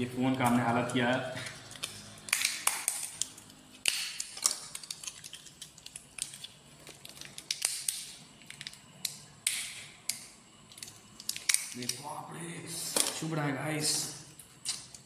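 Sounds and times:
paper and plastic crumpling: 0:04.2 - 0:08.7.

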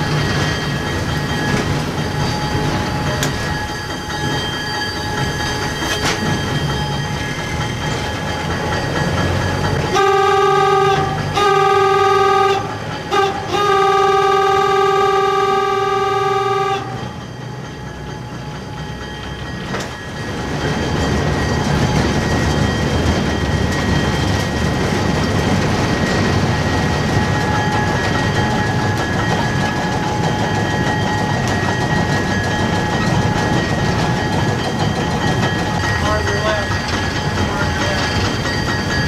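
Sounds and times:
wheels rumbling on rail: 0:00.0 - 0:39.0
locomotive horn: 0:09.9 - 0:17.1.

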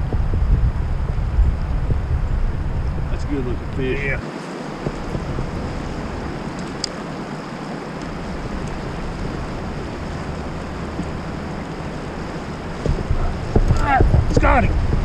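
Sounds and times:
choppy river water: 0:00.0 - 0:15.0
wind buffeting microphone: 0:00.0 - 0:15.0
wind rushing: 0:00.0 - 0:15.0.

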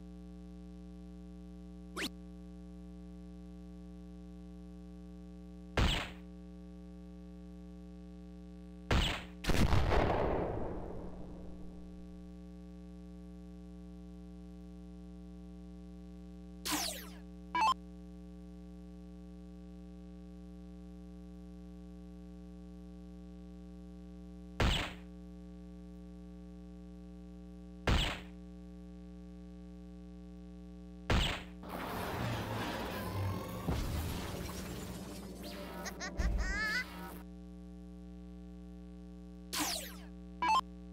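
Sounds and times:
mains hum: 0:00.0 - 0:40.9
darts hitting electronic dartboard: 0:05.8 - 0:06.3, 0:08.9 - 0:09.4, 0:24.6 - 0:25.1, 0:27.8 - 0:28.4, 0:31.1 - 0:31.6, 0:39.5 - 0:40.6.

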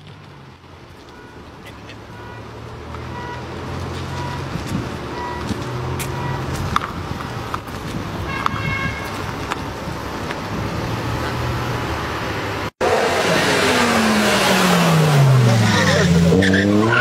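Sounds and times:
tyres skidding: 0:00.0 - 0:17.0
car engine running hard: 0:10.5 - 0:17.0.

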